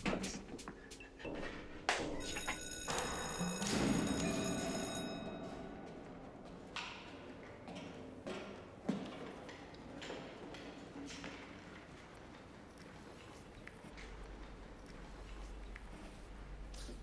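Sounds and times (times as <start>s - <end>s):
electric bell ringing: 2.2s - 6.3s.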